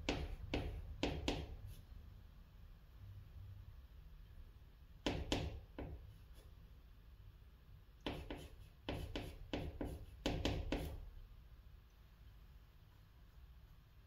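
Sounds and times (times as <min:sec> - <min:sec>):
chalk scratching on chalkboard: 0:00.0 - 0:01.9, 0:08.0 - 0:11.1.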